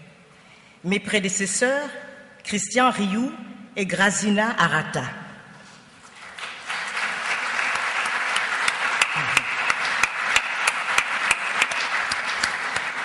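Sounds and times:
audience applauding: 6.1s - 13.0s
sharp rhythmic claps: 6.2s - 13.0s.

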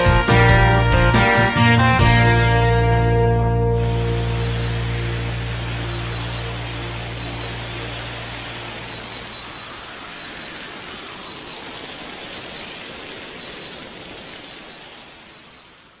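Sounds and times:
low musical note: 0.8s - 8.7s
steady rushing noise: 3.7s - 16.0s.

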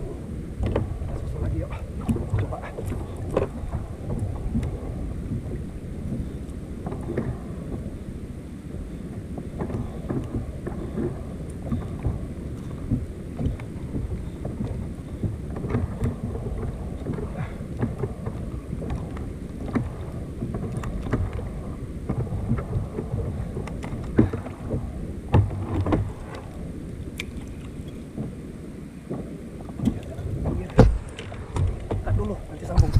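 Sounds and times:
wind rumbling on microphone: 0.0s - 32.9s
knocks against plastic kayak: 30.6s - 32.9s.

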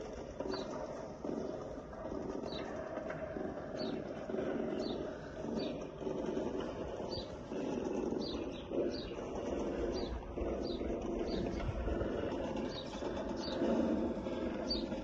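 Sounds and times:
small bird chirping: 2.4s - 2.8s, 3.7s - 5.9s, 7.0s - 15.0s.

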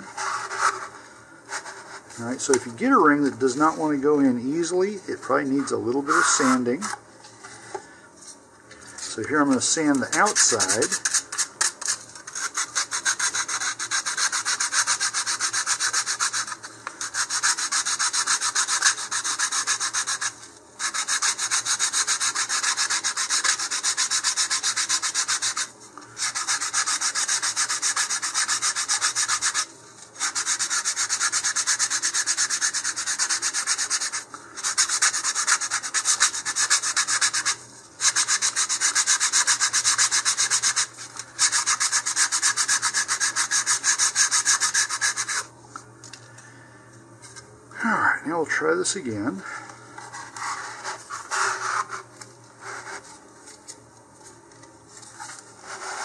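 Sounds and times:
sandpaper rubbing on wood: 5.5s - 7.0s, 9.2s - 45.5s, 50.0s - 53.0s, 55.6s - 56.0s.

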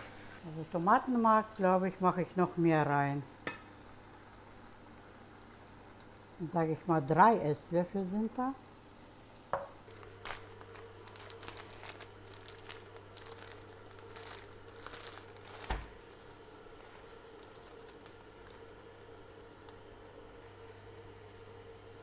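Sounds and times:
faint steady hum: 0.0s - 22.0s
plastic packet crinkling: 9.9s - 16.0s.

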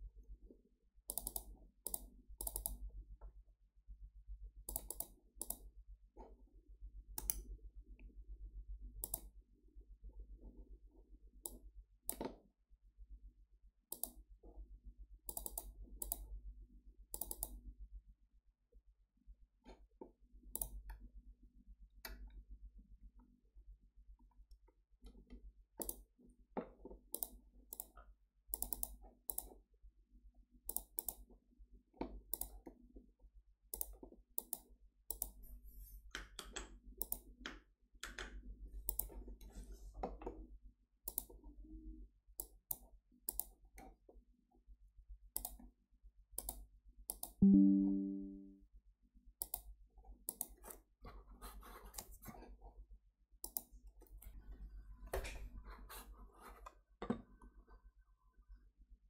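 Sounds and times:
computer mouse clicking: 1.1s - 2.8s, 4.7s - 5.7s, 7.2s - 7.5s, 9.0s - 9.3s, 11.4s - 12.4s, 13.9s - 14.2s, 15.3s - 16.3s, 17.1s - 17.6s, 20.5s - 21.0s, 25.1s - 26.1s, 26.7s - 29.6s, 30.7s - 31.3s, 32.0s - 32.8s, 33.7s - 35.4s, 36.2s - 39.5s, 41.1s - 41.4s, 42.4s - 44.0s, 45.3s - 45.7s, 46.4s - 47.9s, 49.4s - 49.7s, 50.3s - 50.8s, 51.9s - 52.3s, 53.4s - 54.4s
computer system chime: 47.4s - 48.6s.

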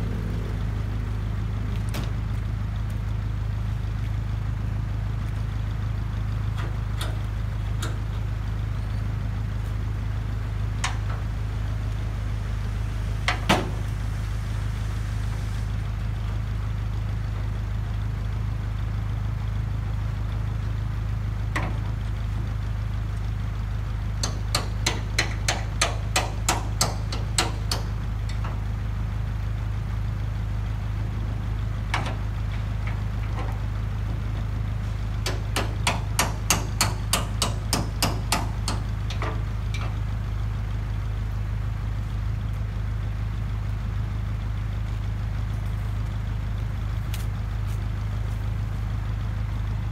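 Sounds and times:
truck diesel engine idling: 0.0s - 49.9s
sharp knocks: 35.2s - 38.9s.

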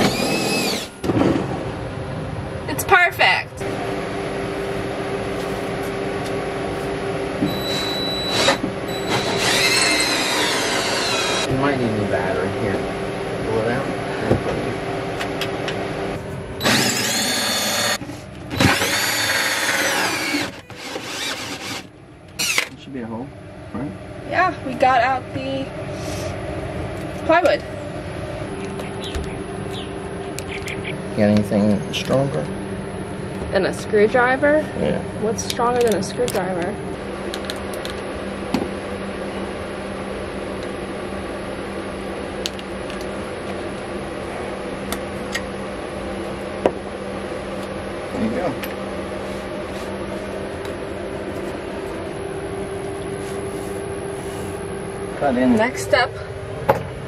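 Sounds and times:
cordless drill hole saw cutting wood: 0.0s - 1.0s, 7.5s - 11.5s, 16.6s - 18.0s, 18.6s - 22.7s
mechanical hum: 0.0s - 57.0s.

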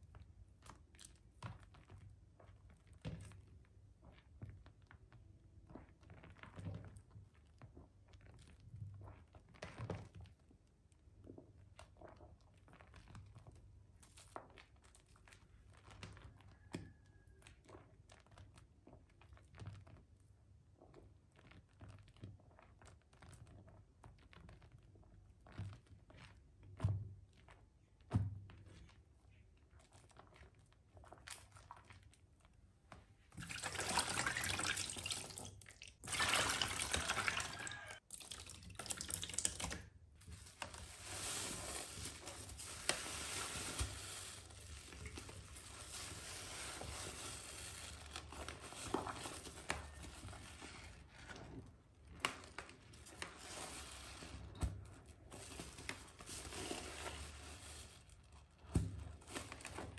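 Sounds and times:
wet squelching of soapy sponge: 0.0s - 59.9s
small water splashes: 33.3s - 39.8s.

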